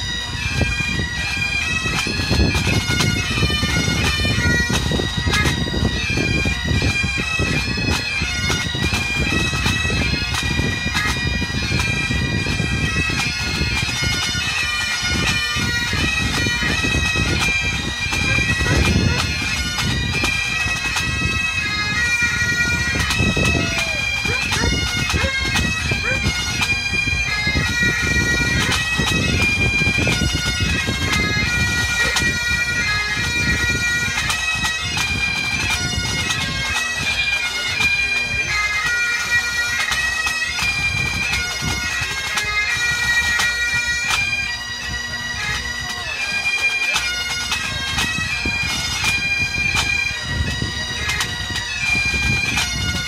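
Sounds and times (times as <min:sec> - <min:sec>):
bagpipes playing melody: 0:00.0 - 0:53.0
drums beating: 0:22.8 - 0:27.0.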